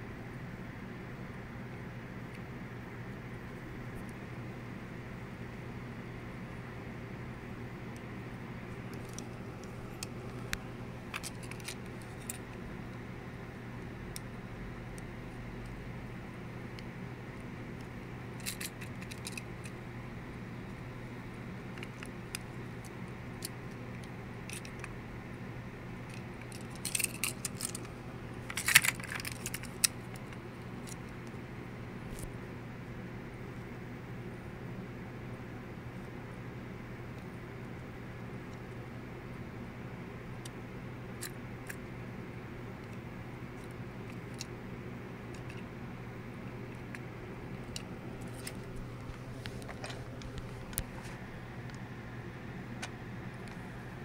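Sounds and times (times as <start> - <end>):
steady low hum: 0.0 - 54.0
toy cars clinking: 18.4 - 19.4, 26.5 - 27.8, 28.5 - 29.9.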